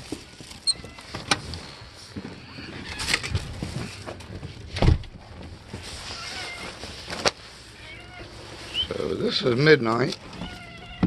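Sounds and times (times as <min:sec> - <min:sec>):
crunching snow: 0:05.2 - 0:10.7.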